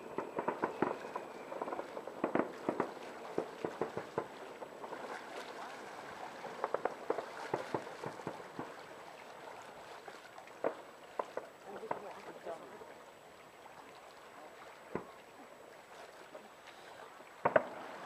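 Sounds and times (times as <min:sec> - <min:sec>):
distant fireworks bangs and pops: 0:00.0 - 0:08.9, 0:10.6 - 0:12.2, 0:17.4 - 0:18.0.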